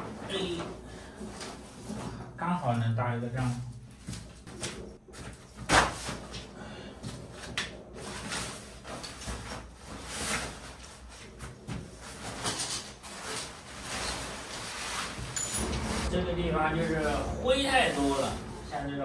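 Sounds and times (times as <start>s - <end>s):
gear rustling and scraping: 7.3s - 19.0s.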